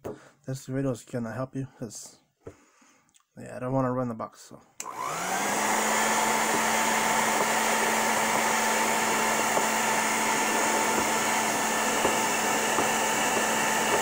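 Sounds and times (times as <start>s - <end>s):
hair dryer running: 4.8s - 14.0s.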